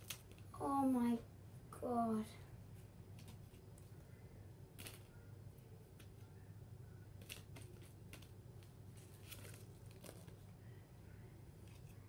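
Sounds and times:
low steady hum: 0.0 - 12.0
trading cards clicking and rustling: 7.2 - 10.5.

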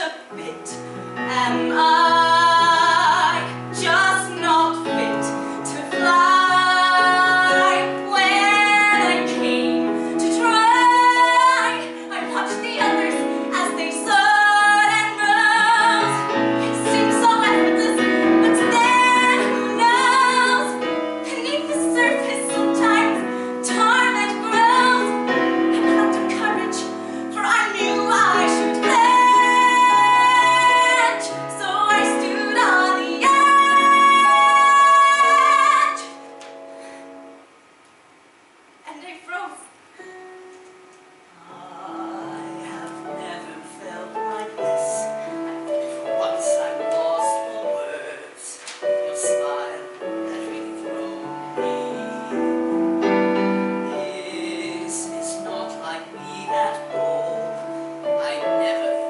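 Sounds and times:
woman singing: 0.0 - 36.2, 41.4 - 59.0
piano accompaniment: 0.0 - 37.6, 40.0 - 59.0.

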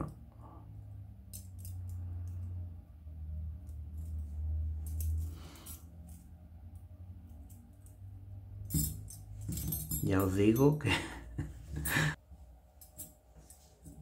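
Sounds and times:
low steady hum: 0.0 - 14.0
metal wire and chain clinking: 1.2 - 2.6, 3.6 - 11.0.

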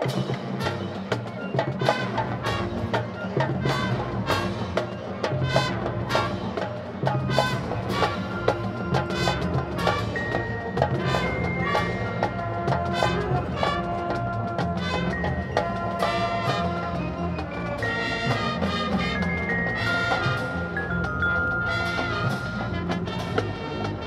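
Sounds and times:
drums and mallet percussion: 0.0 - 24.0
brass sustained notes: 11.0 - 20.9, 21.5 - 24.0.

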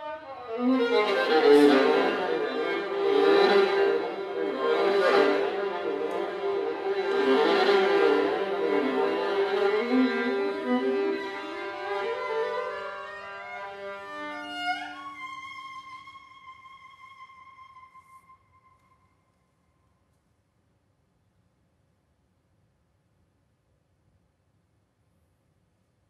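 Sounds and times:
viola bowed with sliding pitches: 0.0 - 19.0.

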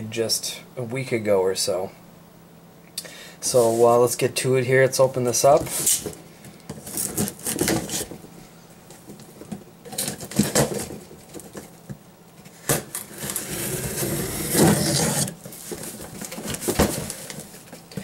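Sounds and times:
cardboard and tape scraping: 6.8 - 8.2, 12.6 - 17.5.

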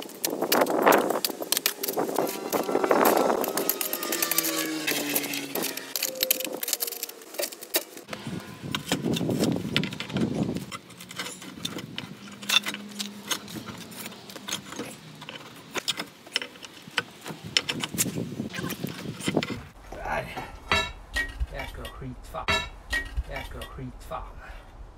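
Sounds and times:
pry bar scraping on concrete: 0.0 - 19.8, 20.4 - 23.7
spade scraping through soil: 1.0 - 16.9.

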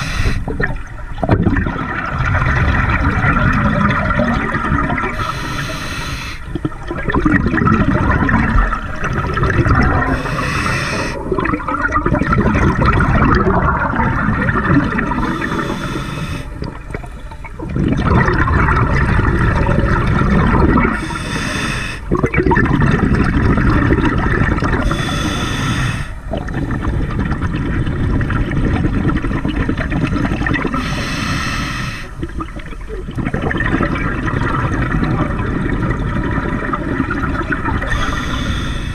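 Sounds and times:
regulator hissing inhale: 0.0 - 0.5, 5.2 - 6.5, 10.1 - 11.2, 15.2 - 16.6, 20.9 - 22.1, 24.8 - 26.2, 30.8 - 32.2, 37.9 - 38.9
gurgle of exhaled bubbles: 0.0 - 38.9.

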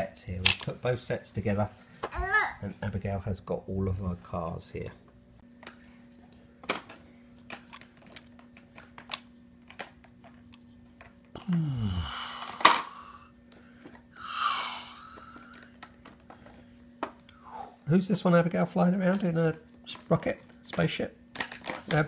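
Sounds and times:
plastic toys clicking and knocking: 0.4 - 0.7, 6.6 - 10.1, 19.9 - 22.0.

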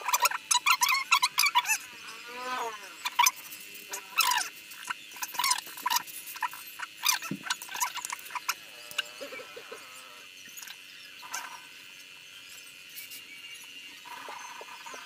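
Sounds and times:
small animal chirps and squeaks: 0.0 - 11.6.

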